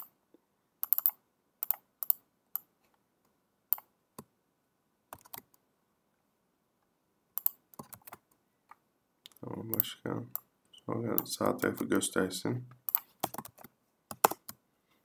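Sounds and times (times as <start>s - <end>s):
computer keyboard tapping: 12.9s - 14.6s.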